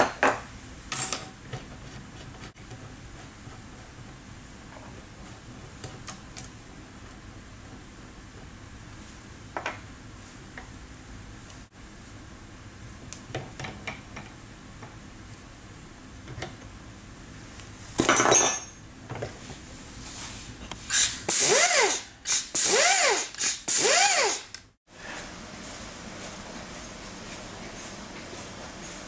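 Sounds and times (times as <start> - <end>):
pneumatic air motor whining: 20.8 - 24.6.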